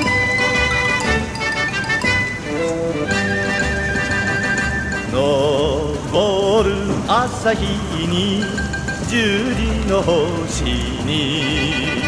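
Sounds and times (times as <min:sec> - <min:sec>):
pop song instrumental melody: 0:00.0 - 0:06.1.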